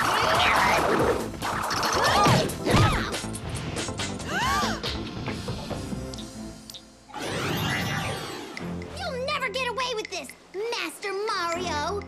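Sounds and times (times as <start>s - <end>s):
cartoon action music: 0.0s - 5.2s, 7.1s - 9.2s.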